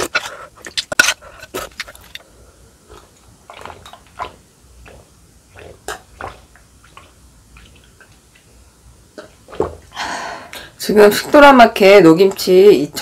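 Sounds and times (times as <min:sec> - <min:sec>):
person gulping water: 0:00.0 - 0:02.2, 0:02.8 - 0:08.5, 0:09.1 - 0:10.7.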